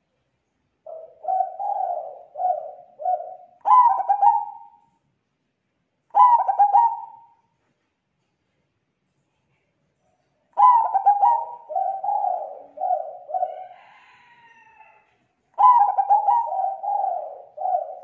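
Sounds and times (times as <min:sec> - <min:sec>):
dove cooing: 0:00.9 - 0:04.9, 0:06.1 - 0:07.4, 0:10.6 - 0:14.7, 0:15.6 - 0:18.0.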